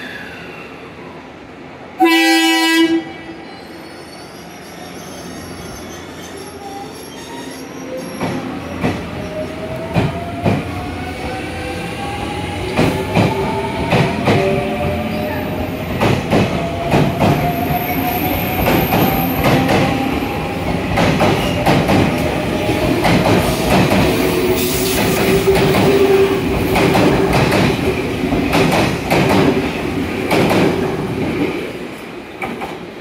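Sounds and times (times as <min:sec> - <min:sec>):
train wheels clacking over rail joints: 0:23.0 - 0:29.6.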